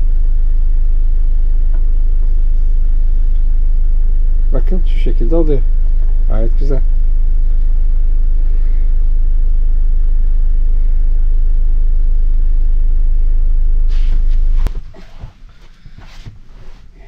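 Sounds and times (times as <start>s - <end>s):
gas burner roaring: 0.0s - 15.0s.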